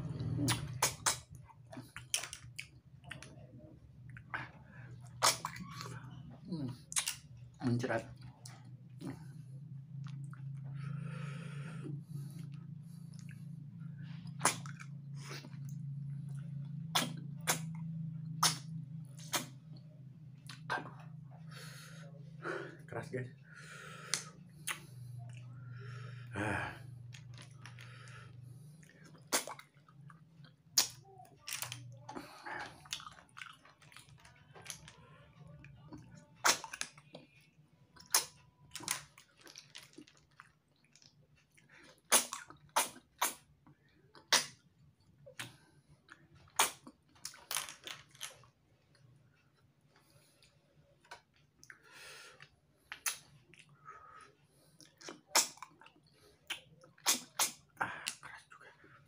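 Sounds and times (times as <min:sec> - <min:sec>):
wet sucking slurps: 0:00.0 - 0:02.2, 0:16.9 - 0:19.6, 0:41.8 - 0:43.5, 0:54.2 - 0:58.3
lip smacks: 0:00.0 - 0:03.5, 0:04.1 - 0:07.4, 0:14.0 - 0:21.7, 0:24.0 - 0:26.0, 0:28.8 - 0:34.9, 0:35.8 - 0:37.2, 0:38.0 - 0:44.7, 0:45.3 - 0:48.5, 0:51.0 - 0:53.8, 0:54.8 - 0:58.7.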